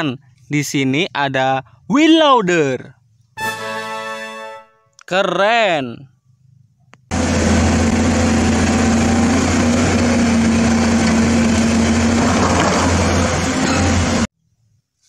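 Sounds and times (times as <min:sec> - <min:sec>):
bulldozer diesel engine droning: 0:07.1 - 0:14.3.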